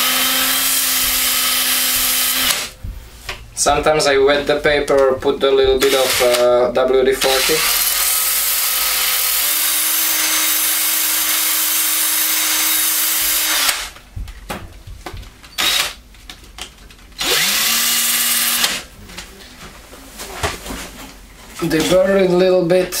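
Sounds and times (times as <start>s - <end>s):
drill sanding knife blade: 0.0s - 2.7s, 5.8s - 6.5s, 7.2s - 13.8s, 17.2s - 18.8s.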